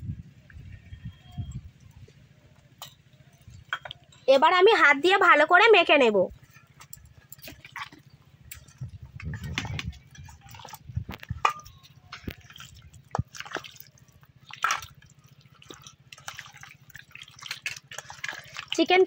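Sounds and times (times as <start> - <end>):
hands kneading wet marinade: 6.5 - 19.0.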